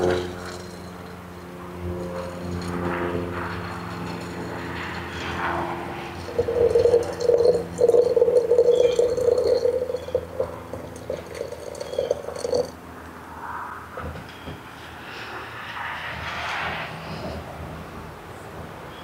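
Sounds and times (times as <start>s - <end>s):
water pouring into teapot: 2.0s - 2.7s, 6.2s - 12.8s.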